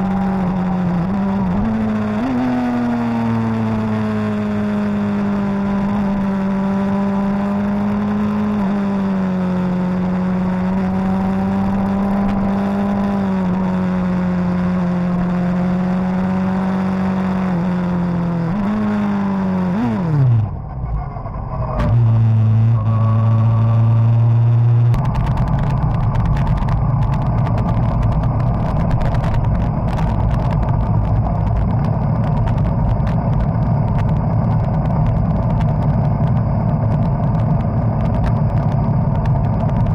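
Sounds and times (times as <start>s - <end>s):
rough low rumble: 0.0s - 3.9s, 17.3s - 39.9s
motorcycle engine revving: 0.0s - 39.9s.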